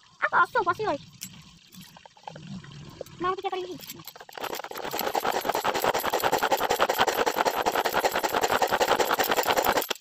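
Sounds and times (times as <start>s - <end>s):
manual food chopper whirring: 4.1s - 10.0s.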